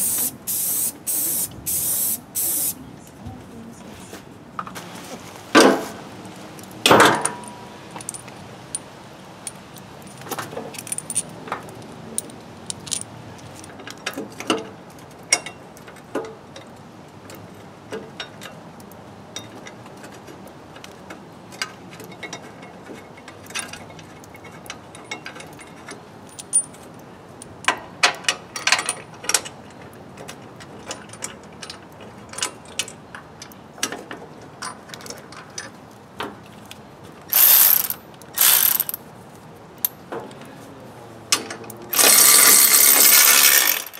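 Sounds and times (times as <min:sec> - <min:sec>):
metal clinks and knocks: 0:06.8 - 0:14.7, 0:22.1 - 0:29.5, 0:41.9 - 0:43.9.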